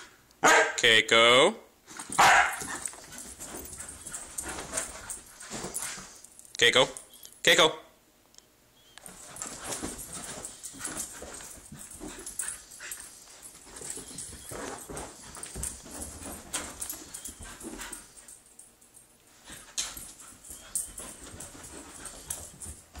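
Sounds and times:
paws scuffling: 0:01.9 - 0:06.4, 0:09.0 - 0:18.7, 0:19.3 - 0:23.0
puppy whining: 0:13.6 - 0:15.2, 0:16.8 - 0:18.0, 0:20.2 - 0:22.6.

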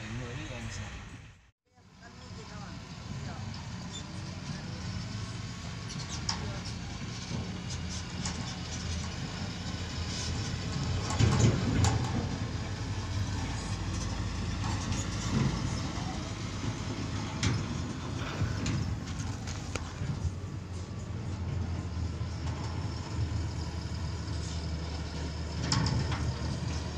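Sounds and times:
diesel truck engine rumbling: 0:00.0 - 0:26.9
knocks and rattles: 0:10.1 - 0:20.4.

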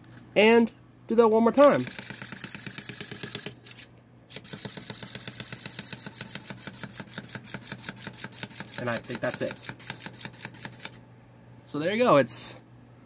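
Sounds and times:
clockwork toy clicking rapidly: 0:01.7 - 0:11.0.

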